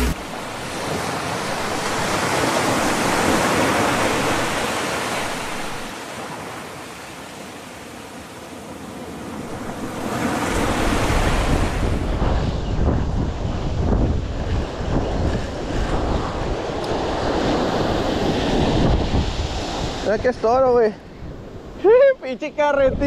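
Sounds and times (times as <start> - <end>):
ocean surf washing ashore: 0.0 - 23.0
wind buffeting microphone: 9.4 - 23.0.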